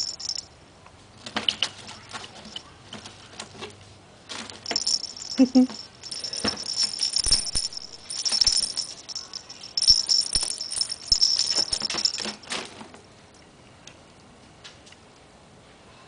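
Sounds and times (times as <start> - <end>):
toy rattle jingling: 0.0 - 0.6, 2.4 - 2.6, 4.6 - 12.5.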